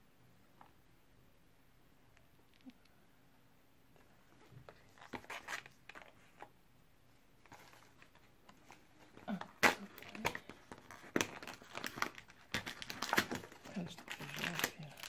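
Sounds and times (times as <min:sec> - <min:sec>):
cardboard crinkling: 0:04.0 - 0:06.5, 0:07.4 - 0:15.0
foil packet crackling: 0:07.5 - 0:15.0.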